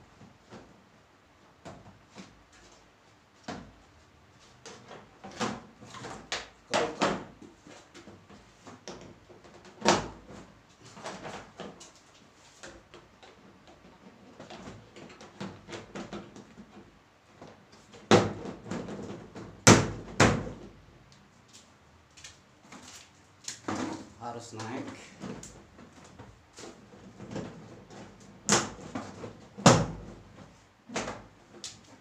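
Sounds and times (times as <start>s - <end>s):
plastic panels clacking and knocking: 4.6s - 12.0s.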